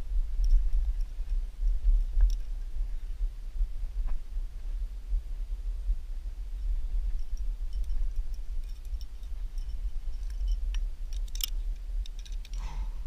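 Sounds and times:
steady low rumble: 0.0 - 13.0
climbing gear clicks and clinks: 0.4 - 2.6, 7.0 - 13.0.

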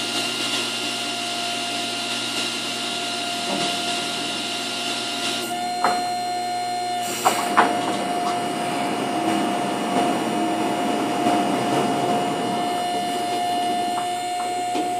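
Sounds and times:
constant whine: 1.5 - 14.9
sawmill gasoline engine running: 6.9 - 14.9.

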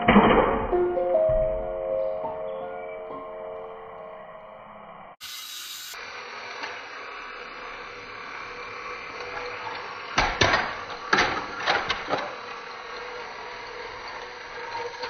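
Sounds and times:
toy train engine whirring: 5.2 - 15.0.

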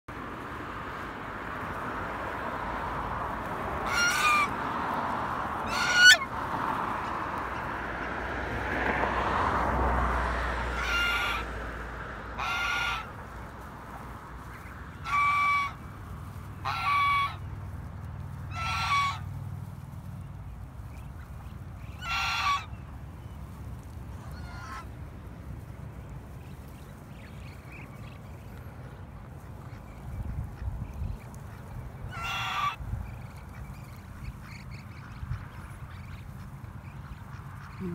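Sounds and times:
goose honking: 3.4 - 7.8, 10.6 - 11.6, 12.3 - 25.0, 26.4 - 37.9.

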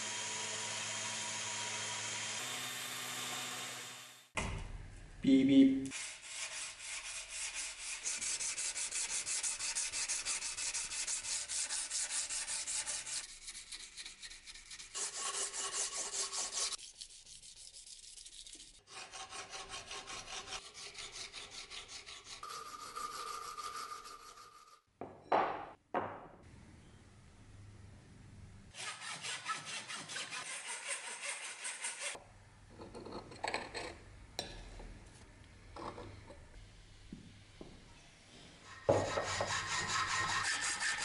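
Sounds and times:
sanding metal blade by hand: 5.9 - 24.8, 28.8 - 32.2, 38.7 - 41.0.

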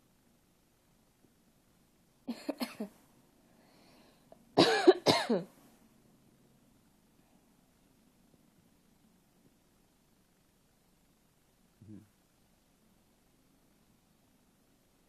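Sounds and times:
person coughing: 2.3 - 2.9, 4.6 - 5.5.

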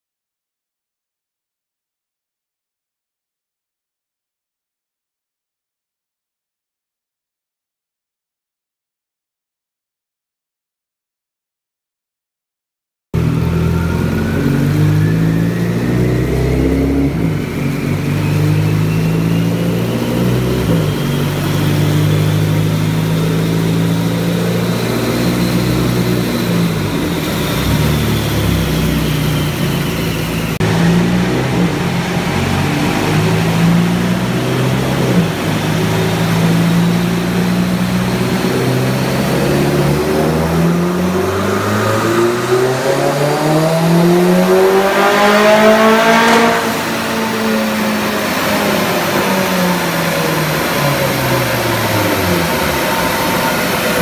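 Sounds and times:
turbo whine: 13.2 - 42.8, 46.6 - 54.0
car engine revving on dyno: 13.2 - 54.0.

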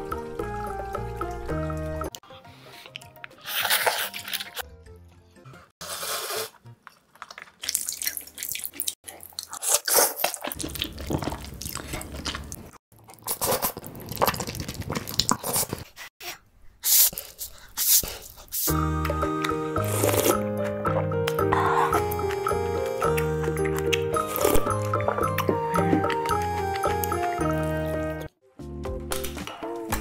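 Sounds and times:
noodle slurping and chewing: 2.4 - 4.6, 5.8 - 16.1, 16.8 - 27.9.

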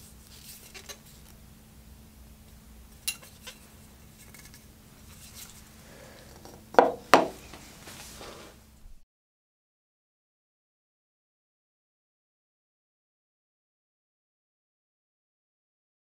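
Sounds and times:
faint steady hum: 0.0 - 9.0
knife set down on wooden bench: 6.4 - 7.4.

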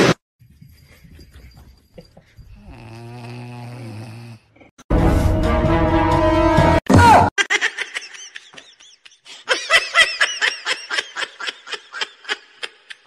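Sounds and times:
person laughing in rapid bursts: 7.4 - 13.0.

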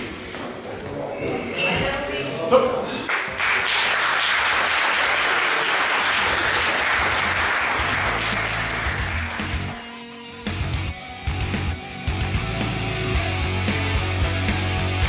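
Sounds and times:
audience applauding: 3.0 - 9.9
music playing: 7.2 - 15.0.

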